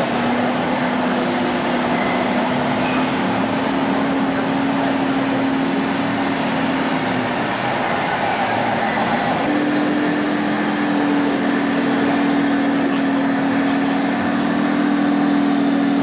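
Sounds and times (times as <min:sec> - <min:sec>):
busy indoor hall din: 0:00.0 - 0:16.0.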